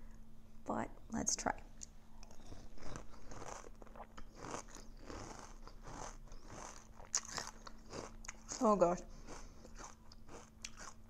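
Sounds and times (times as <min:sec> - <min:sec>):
crunching and chewing cereal: 0:02.2 - 0:11.0.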